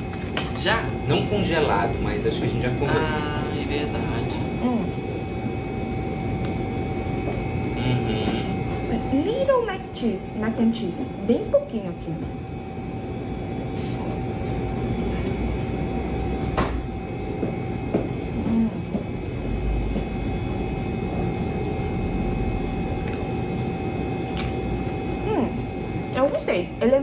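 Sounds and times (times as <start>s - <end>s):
faint high whine: 0.0s - 27.0s
rumbling hum: 0.0s - 27.0s.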